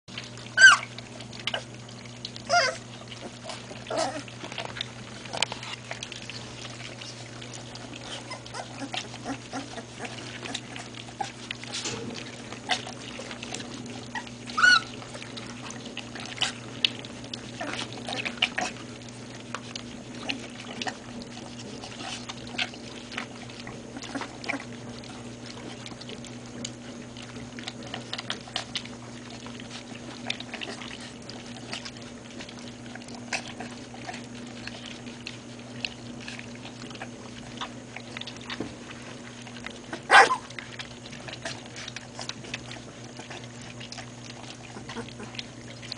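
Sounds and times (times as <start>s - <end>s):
puppies lapping and slurping: 0.1s - 45.9s
steady low hum: 0.1s - 45.9s
puppy squeals: 0.5s - 1.7s, 2.5s - 2.9s, 3.9s - 4.3s, 8.0s - 10.6s, 14.1s - 15.0s.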